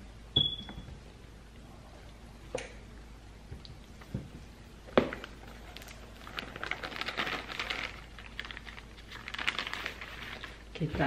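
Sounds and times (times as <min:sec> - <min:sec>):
plastic bag crinkling: 0:05.0 - 0:10.7.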